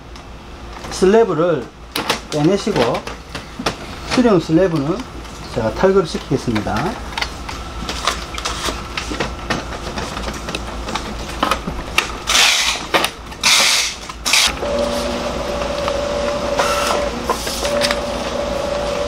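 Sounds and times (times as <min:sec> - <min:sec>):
printer mechanical whine: 0:00.8 - 0:19.0
printer parts clicking and knocking: 0:01.9 - 0:05.0, 0:06.1 - 0:14.5.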